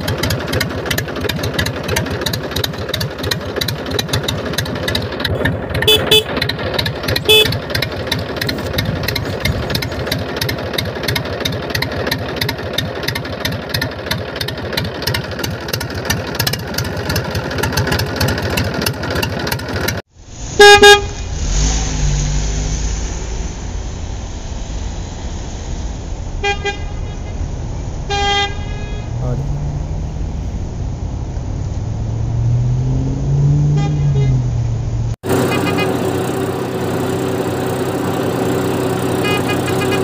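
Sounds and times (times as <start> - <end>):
tractor engine chugging: 0.0 - 21.0, 35.2 - 40.0
truck engine rumble: 0.0 - 40.0
horn toot: 5.8 - 6.4, 7.2 - 7.7, 20.5 - 22.2, 26.4 - 30.4, 33.6 - 36.4, 39.1 - 40.0
loud horn honk: 5.8 - 6.4, 7.2 - 7.7, 20.5 - 22.1, 26.4 - 29.6, 33.6 - 34.6, 35.2 - 40.0.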